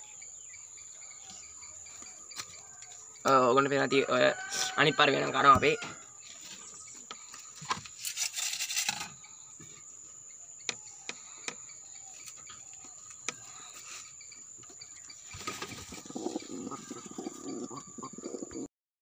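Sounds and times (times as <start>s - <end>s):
rustling in wooden boxes: 5.1s - 18.4s.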